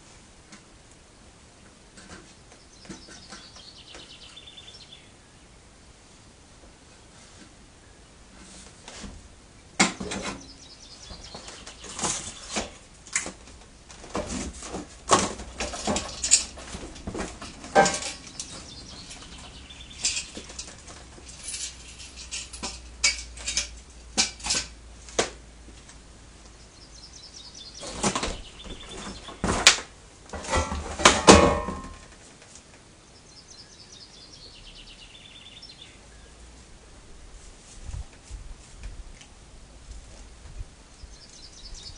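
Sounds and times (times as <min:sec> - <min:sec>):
metal parts clattering and knocking: 0:14.1 - 0:24.7, 0:30.3 - 0:32.0.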